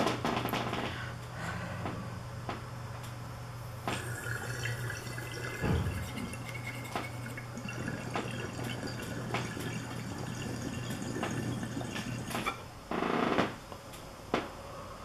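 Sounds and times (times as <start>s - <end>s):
water churning and dripping: 3.9s - 12.6s
low thump: 5.6s - 6.2s.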